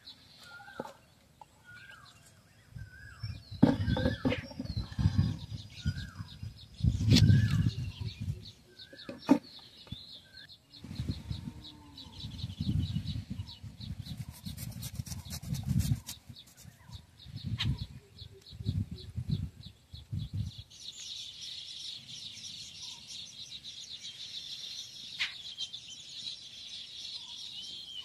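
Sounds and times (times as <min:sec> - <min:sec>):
short bird chirps: 0:25.1 - 0:25.8.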